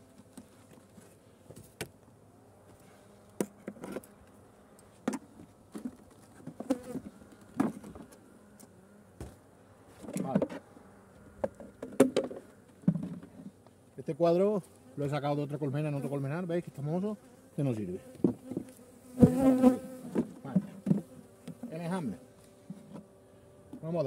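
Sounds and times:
bee flying close past: 2.3 - 5.7, 6.5 - 13.6, 17.1 - 23.8
wooden knocks of hive box: 5.0 - 8.1, 9.2 - 9.4, 11.4 - 13.4, 18.1 - 21.7
bees buzzing: 6.4 - 13.6, 14.8 - 24.0.

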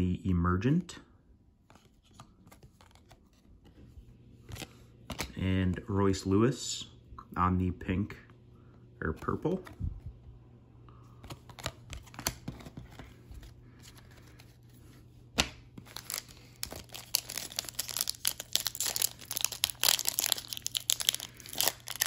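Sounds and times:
card handling clicks and taps: 11.2 - 13.4
plastic wrapper crinkling and tearing: 15.8 - 22.0.

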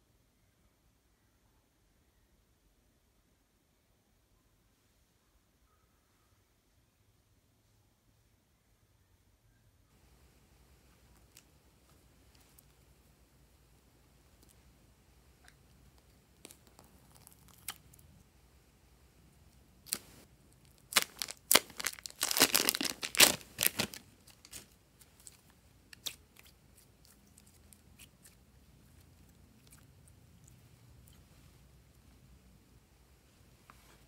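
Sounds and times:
plastic bag crinkling and tearing: 20.7 - 25.4.

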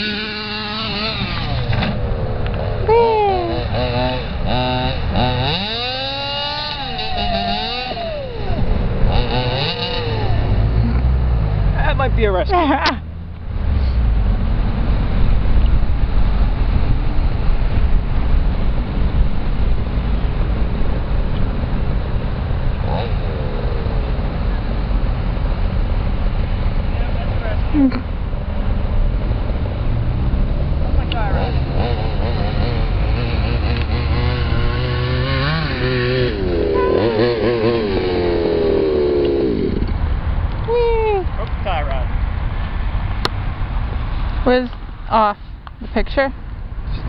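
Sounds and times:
two-stroke engine revving: 0.0 - 13.1, 22.6 - 24.9, 30.2 - 40.0
wind buffeting microphone: 0.0 - 47.0
toy truck motor running: 5.2 - 10.5.

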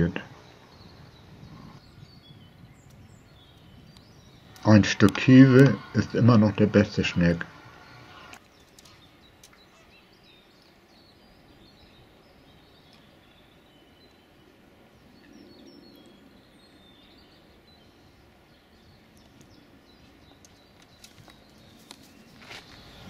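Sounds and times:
high chirps of small birds: 0.0 - 23.0.

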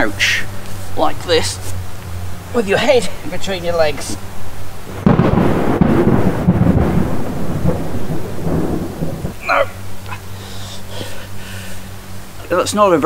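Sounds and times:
thunder crack and rumble: 4.9 - 9.4.

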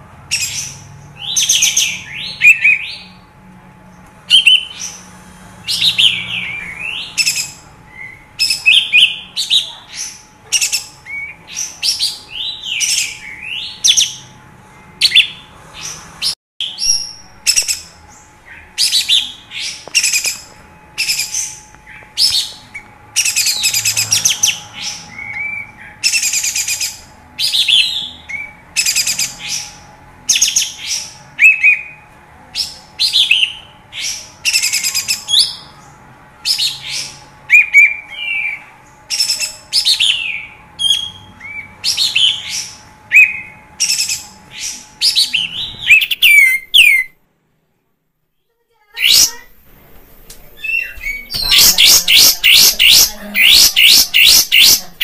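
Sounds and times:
harsh buzzy bird phrases: 43.2 - 47.1, 48.7 - 55.0
bird singing chattering whistles: 45.1 - 47.1, 49.0 - 49.6, 50.6 - 55.0.

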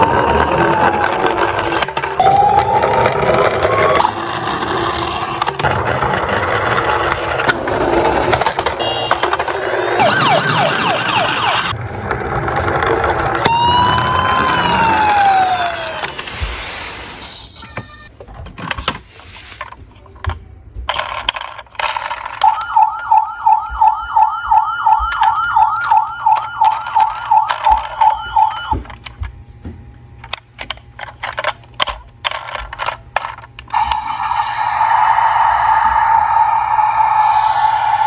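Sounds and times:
toy siren warbling: 0.0 - 5.3, 8.8 - 11.8, 13.4 - 16.4, 17.0 - 18.1, 22.4 - 28.8, 33.7 - 38.0
plastic toy clatter: 18.2 - 22.8, 25.1 - 29.2, 30.2 - 34.0.

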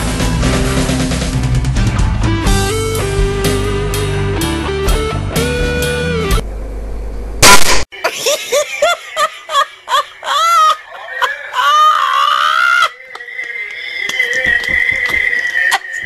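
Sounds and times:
loud short blast: 7.4 - 7.8
person crying out: 8.0 - 13.1.

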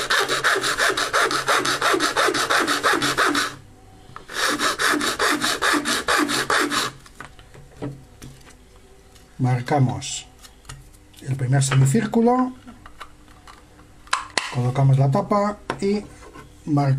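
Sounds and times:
file rasping on plastic: 0.0 - 3.6, 4.3 - 7.0.

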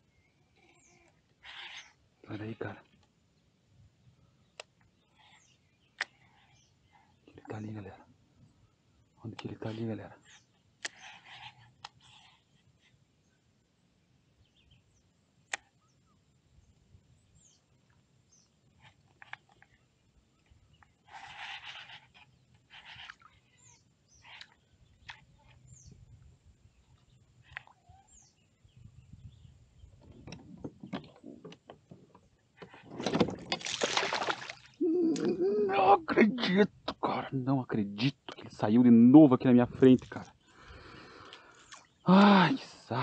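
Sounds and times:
faint bird chirps: 0.0 - 2.8, 4.4 - 13.4, 14.3 - 30.1
small knocks and clicks: 30.0 - 33.6.

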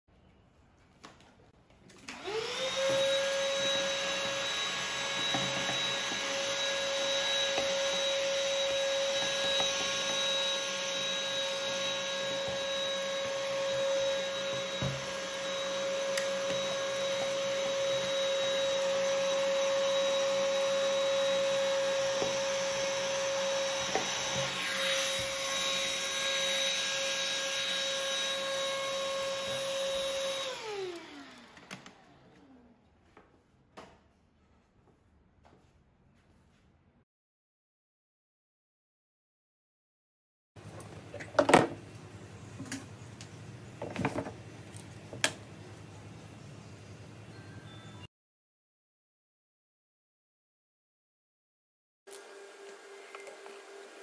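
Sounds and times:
orbit sander humming: 2.2 - 32.6.

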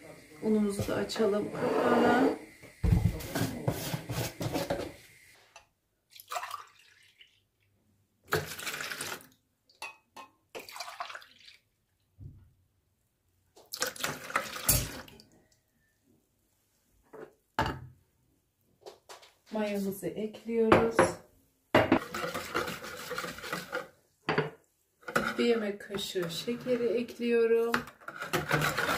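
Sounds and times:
milk pouring into water: 6.1 - 9.4, 10.6 - 12.0, 13.6 - 15.3.

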